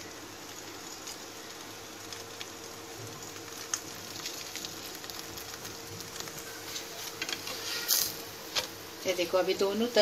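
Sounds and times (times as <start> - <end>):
oil crackling and popping: 0.0 - 9.2
oil sizzling in a pan: 0.0 - 10.0.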